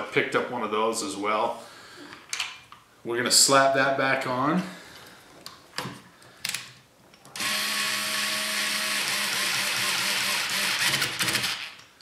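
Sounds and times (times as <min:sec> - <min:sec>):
electric screwdriver running: 0:07.4 - 0:11.8.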